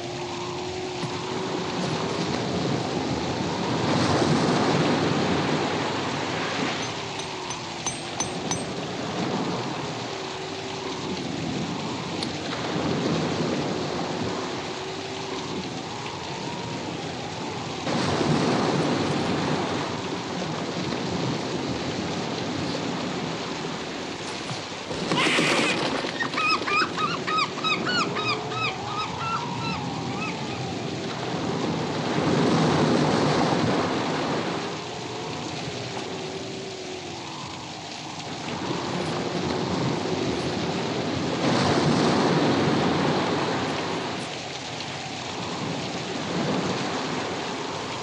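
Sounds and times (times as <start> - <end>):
crashing surf: 0.0 - 27.7, 38.4 - 44.4
heavy rain: 0.0 - 48.0
wavering wind howl: 0.0 - 48.0.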